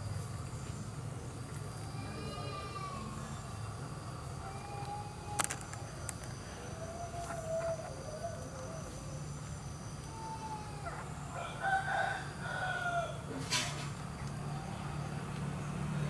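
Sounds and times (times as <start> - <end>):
rooster crowing: 10.7 - 13.4.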